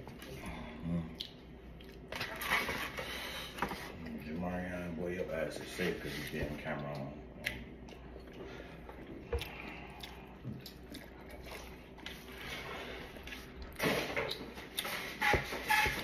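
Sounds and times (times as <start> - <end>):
person chewing food: 0.0 - 4.1, 6.8 - 15.1.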